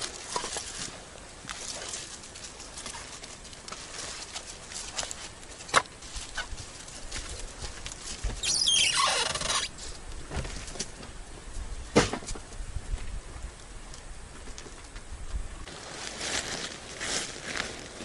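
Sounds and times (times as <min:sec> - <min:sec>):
door hinges squealing: 0:08.4 - 0:09.7
footsteps in dry leaves: 0:15.6 - 0:18.0.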